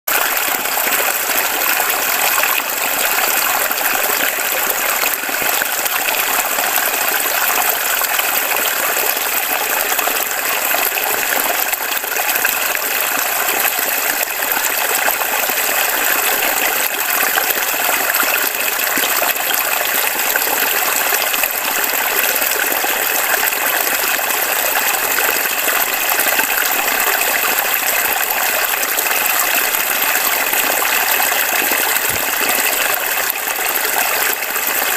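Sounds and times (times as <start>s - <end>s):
creek flowing over stones: 0.1s - 34.9s.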